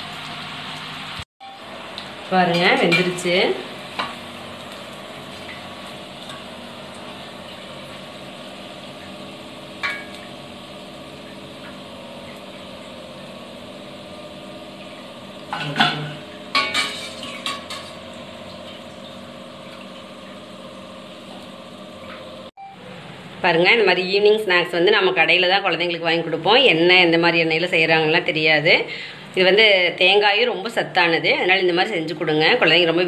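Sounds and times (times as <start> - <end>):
metal skimmer clinking on pot: 9.8 - 10.2, 15.5 - 18.0.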